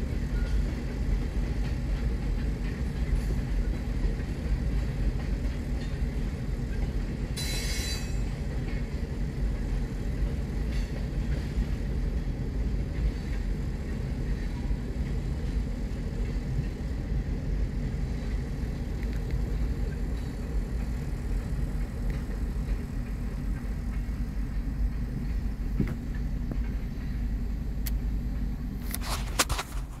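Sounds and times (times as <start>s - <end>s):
freight train passing: 0.0s - 30.0s
car cabin rumble: 19.2s - 30.0s.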